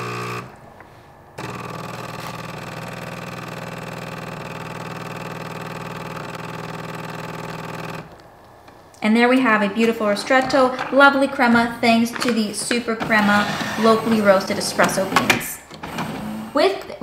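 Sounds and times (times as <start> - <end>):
espresso machine pump humming: 0.0 - 0.6, 1.4 - 8.2.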